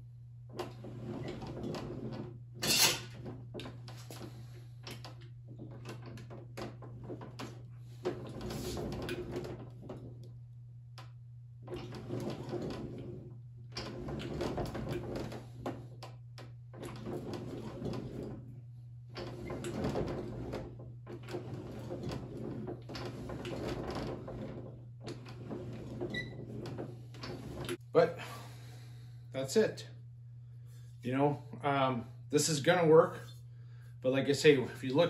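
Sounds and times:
steady low hum: 0.0s - 35.0s
slip roll rollers grinding: 0.5s - 10.4s, 11.6s - 16.1s, 16.7s - 27.8s.

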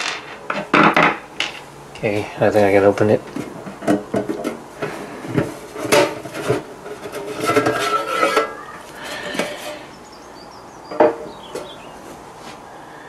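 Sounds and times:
metal cover scraping with squeal: 5.0s - 10.0s.

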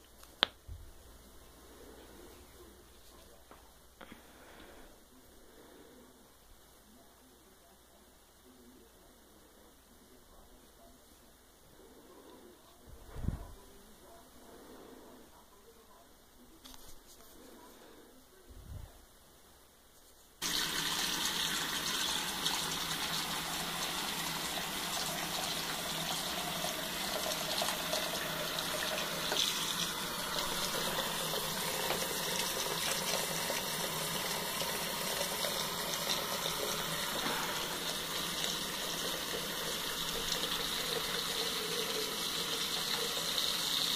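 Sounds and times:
faucet running: 20.4s - 43.9s.

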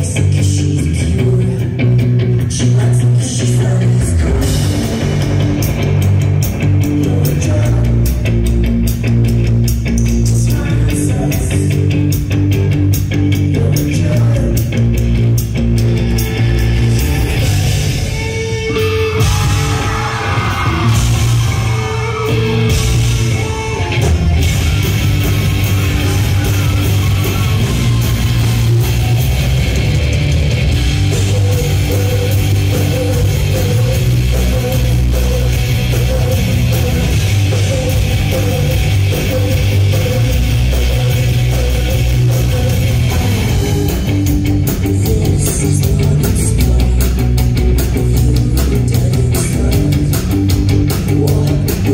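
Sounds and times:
distorted guitar chords: 0.0s - 51.9s
drums beating: 0.0s - 51.9s
sung vocal line: 30.8s - 44.2s.

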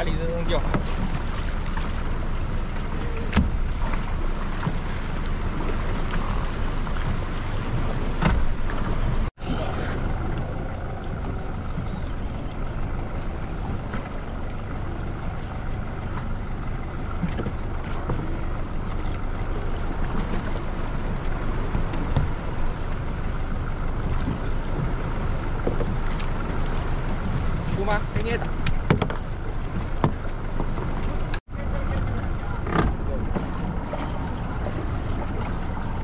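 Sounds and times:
boat engine rumbling: 0.0s - 36.0s
water noise: 0.0s - 36.0s
wind: 0.0s - 36.0s.

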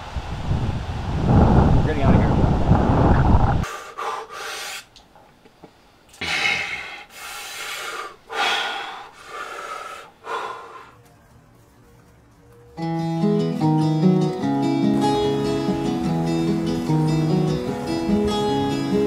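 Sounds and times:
wind noise on microphone: 0.0s - 3.7s
man breathing heavily: 3.6s - 4.9s, 6.1s - 11.0s.

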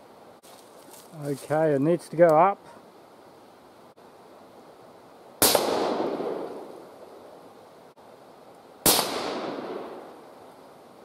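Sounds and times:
gunshot echo: 5.4s - 6.6s, 8.8s - 10.1s
suppressed rifle shots: 5.4s - 6.6s, 8.8s - 10.0s.

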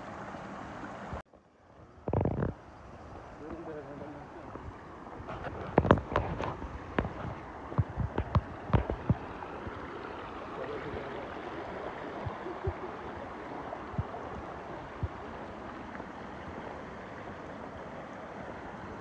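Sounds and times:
creek rippling over rocks: 0.0s - 19.0s
soft low thumps: 5.7s - 9.3s.

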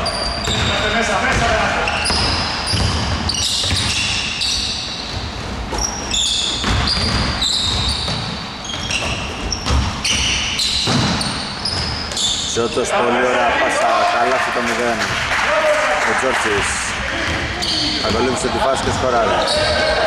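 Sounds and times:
shoes squeaking on gym floor: 0.0s - 12.7s, 17.2s - 20.0s
basketball dribbling: 0.4s - 4.2s, 6.6s - 12.2s.

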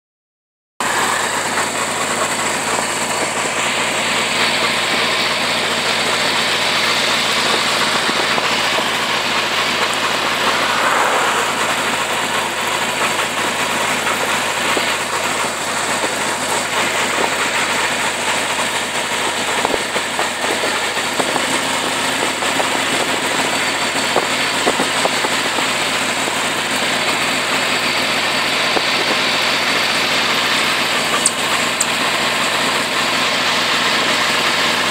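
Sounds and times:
motorcycle engine running: 0.8s - 34.9s
wind rushing over microphone: 9.9s - 13.4s.

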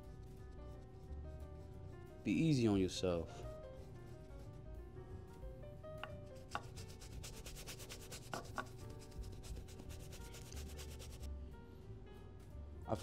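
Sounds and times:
soft background music: 0.0s - 13.0s
paintbrush scrubbing on canvas: 6.6s - 11.3s.

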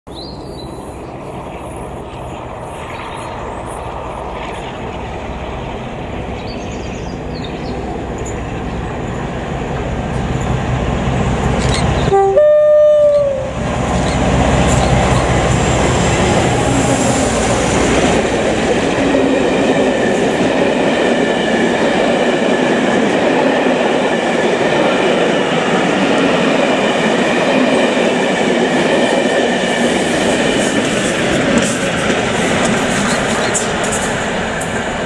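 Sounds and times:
diesel locomotive engine rumbling: 0.2s - 35.0s
two-tone train horn: 12.1s - 13.6s.

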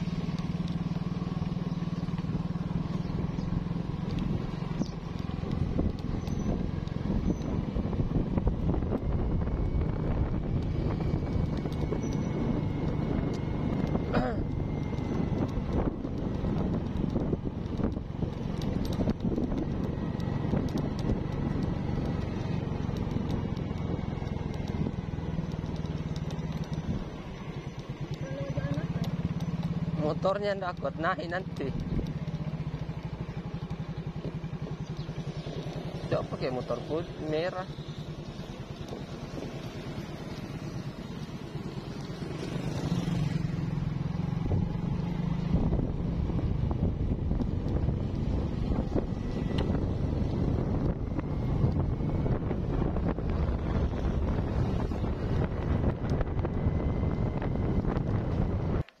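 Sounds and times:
motorcycle engine running: 0.0s - 59.0s
road noise: 0.0s - 59.0s
wind noise: 4.1s - 25.8s, 44.4s - 59.0s.

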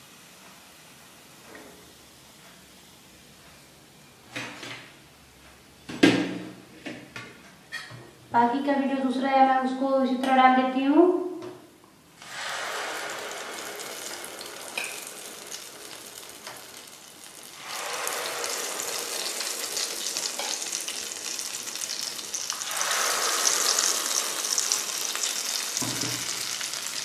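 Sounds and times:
batter sizzling in hot oil: 12.2s - 27.0s.

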